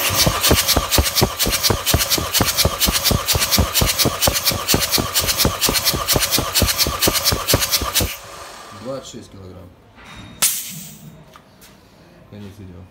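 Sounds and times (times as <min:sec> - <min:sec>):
starter motor cranking engine: 0:00.0 - 0:08.5.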